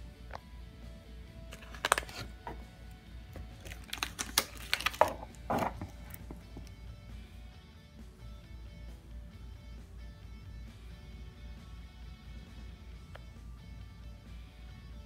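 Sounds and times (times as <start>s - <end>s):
quiet background music: 0.0s - 15.0s
plastic bag crinkling: 1.5s - 2.3s, 3.4s - 6.3s.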